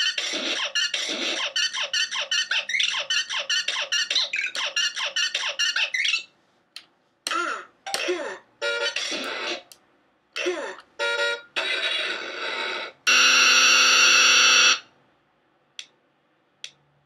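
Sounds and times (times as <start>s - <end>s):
loud steady buzzing tone: 13.1s - 14.8s.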